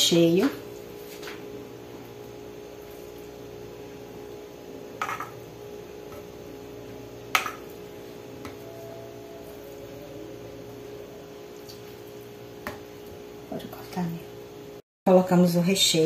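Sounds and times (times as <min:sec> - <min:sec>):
steady low hum: 0:00.0 - 0:16.0
spoon knocking against pot: 0:05.0 - 0:05.4, 0:07.3 - 0:07.7.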